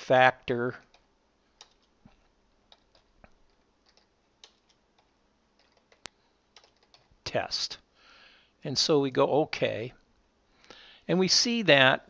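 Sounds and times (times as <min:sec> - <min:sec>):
keyboard keystrokes: 0:01.6 - 0:01.9, 0:02.7 - 0:07.1.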